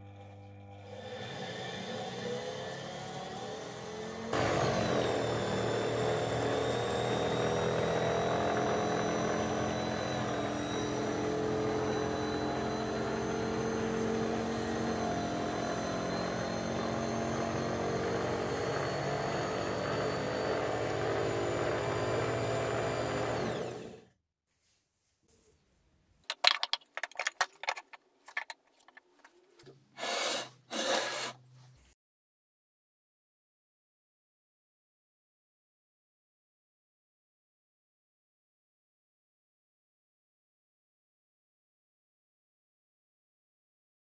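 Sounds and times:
belt sander motor humming: 0:00.0 - 0:24.1, 0:30.0 - 0:31.4.

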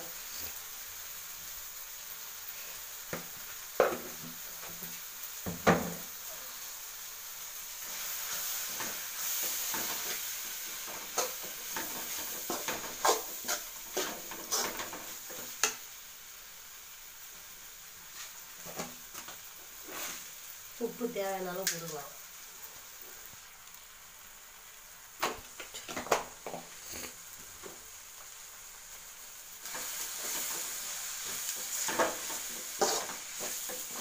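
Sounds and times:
frying sizzle: 0:00.0 - 0:34.0
spoon scraping and knocking a pan: 0:03.1 - 0:04.8, 0:10.8 - 0:15.8, 0:25.2 - 0:27.8, 0:29.7 - 0:34.0.

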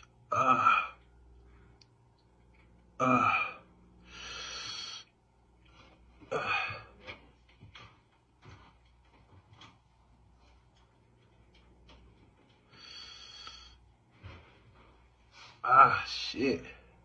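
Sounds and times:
hissing breath: 0:04.0 - 0:05.1.

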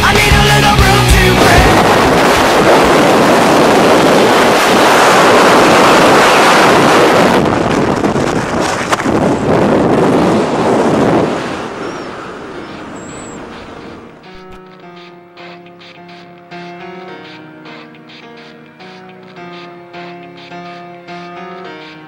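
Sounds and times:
freefall wind rushing over microphone: 0:01.1 - 0:14.6.

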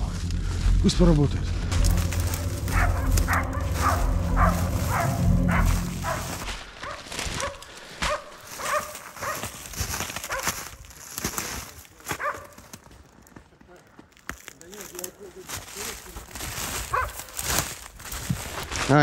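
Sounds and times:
low steady rumble: 0:00.0 - 0:06.7
dogs barking: 0:01.9 - 0:09.6, 0:10.2 - 0:10.6, 0:12.1 - 0:12.7, 0:16.8 - 0:17.4.

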